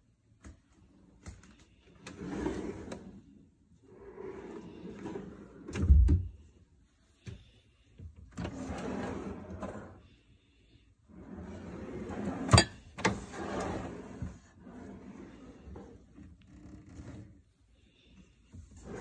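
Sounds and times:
wooden shelves sliding on runners: 0:00.9 - 0:06.6, 0:08.3 - 0:10.1, 0:11.0 - 0:17.5, 0:18.4 - 0:19.0.

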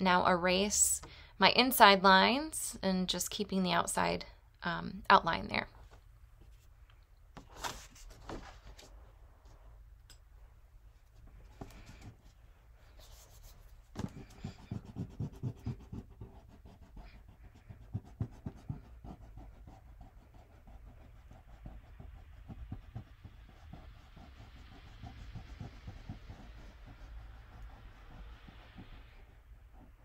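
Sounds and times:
eraser rubbing on paper: 0:12.9 - 0:30.0.

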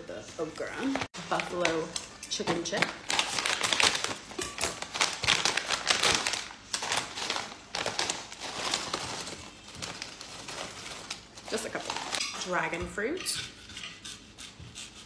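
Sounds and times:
plastic bag crackling and rustling: 0:00.8 - 0:12.2
scissors snipping plastic bag: 0:01.3 - 0:12.2.

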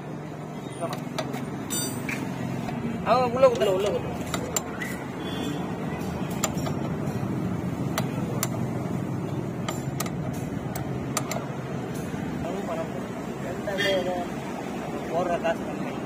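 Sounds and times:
street traffic noise: 0:00.0 - 0:16.0
spanner clicking on metal: 0:03.4 - 0:05.0, 0:06.3 - 0:07.3, 0:07.9 - 0:12.2.

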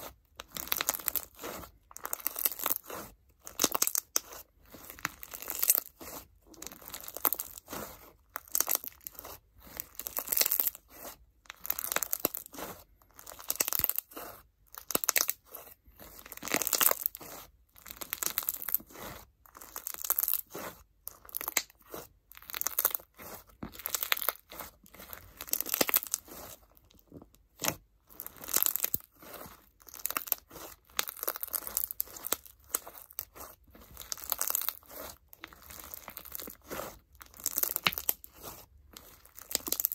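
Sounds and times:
crunchy slime being squeezed: 0:00.0 - 0:26.8, 0:27.4 - 0:39.9.

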